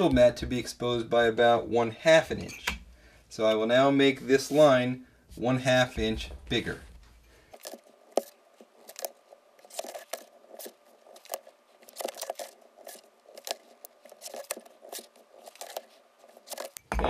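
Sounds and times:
pencil scraping along ruler: 7.6s - 16.8s.

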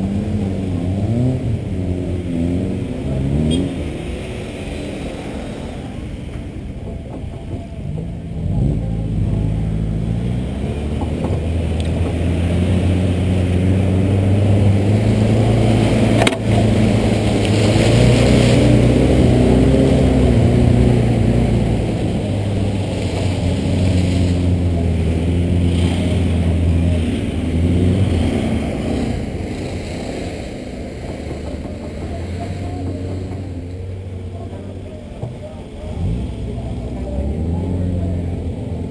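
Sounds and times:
engine revving: 8.2s - 30.6s.

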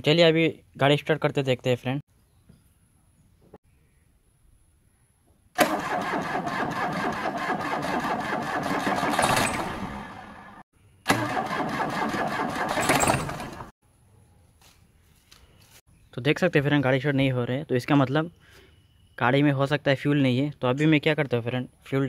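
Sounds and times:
diesel engine cranking: 5.6s - 13.7s.

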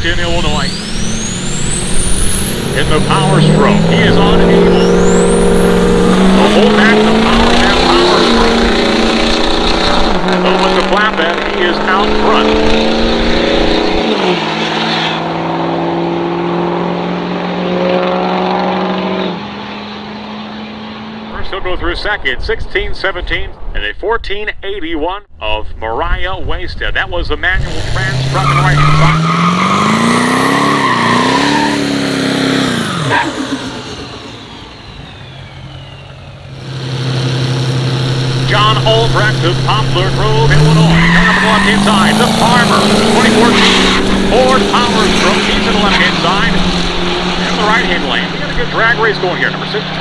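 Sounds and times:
diesel trucks at full throttle: 0.0s - 22.6s, 27.4s - 50.0s
low engine hum: 32.1s - 50.0s.

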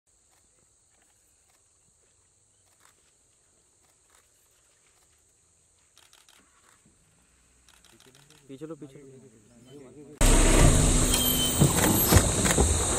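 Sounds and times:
high-pitched insect drone: 10.2s - 12.9s.

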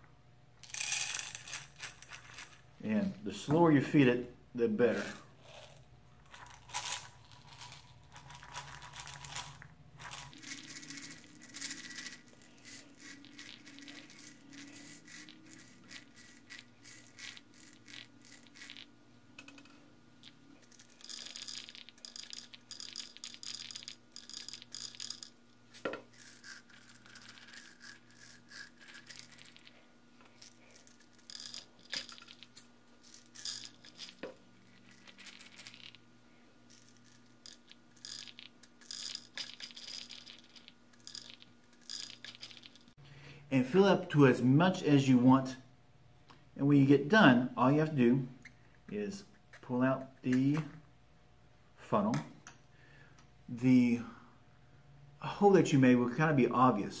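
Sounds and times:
faint steady hum: 0.0s - 57.0s
metal pellets trickling through funnel: 0.6s - 2.6s, 4.8s - 18.9s, 20.2s - 36.0s.

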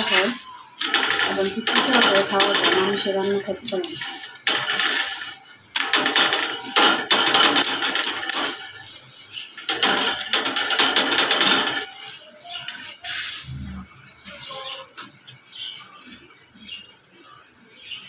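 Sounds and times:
metal spatula scraping iron pan: 0.0s - 13.5s.

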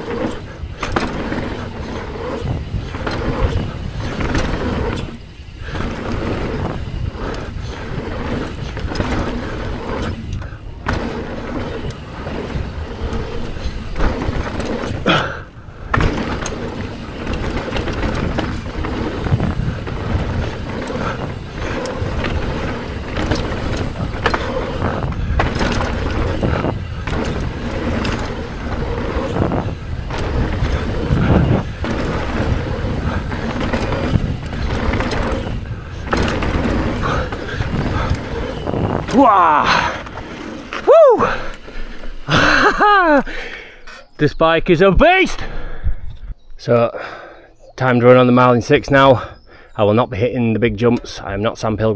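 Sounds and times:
tyre rumble on dirt: 0.0s - 41.5s
wind noise: 0.0s - 43.4s, 44.3s - 46.6s.

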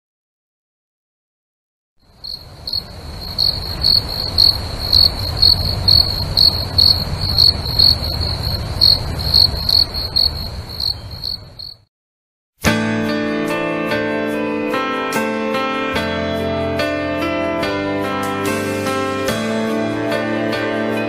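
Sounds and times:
high-pitched insect chirping: 2.0s - 11.8s
low steady rumble: 2.4s - 10.8s.

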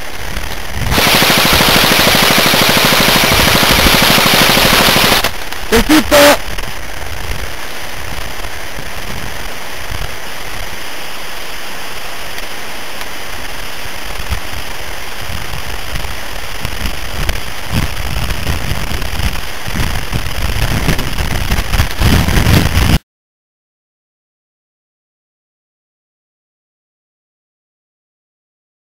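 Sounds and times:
low rumbling wind buffets: 0.0s - 5.8s, 6.4s - 12.0s, 13.3s - 23.0s
steady microphone hiss: 0.0s - 23.0s.

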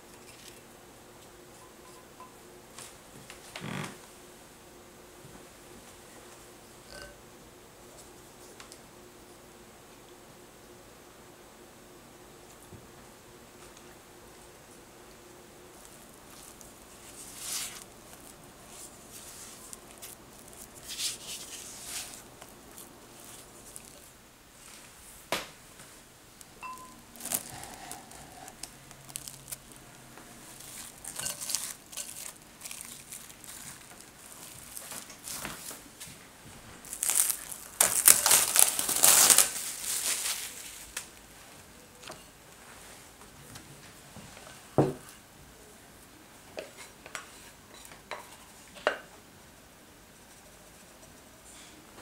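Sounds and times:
loud crinkling rustle: 27.1s - 35.9s, 36.7s - 41.1s.

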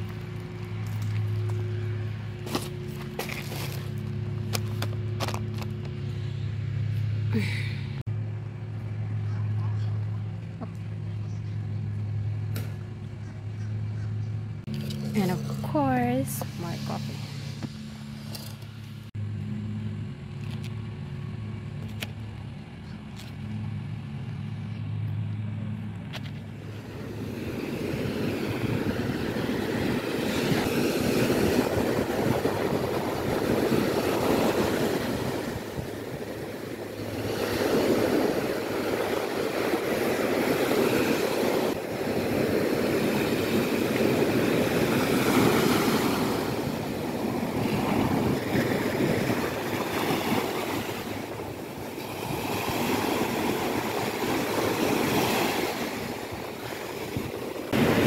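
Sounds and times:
surf washing onto a beach: 26.7s - 58.0s.

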